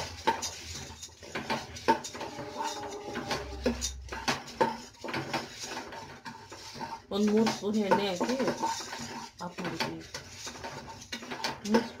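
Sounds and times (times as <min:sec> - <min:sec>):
spatula scraping metal pot: 0:00.0 - 0:12.0.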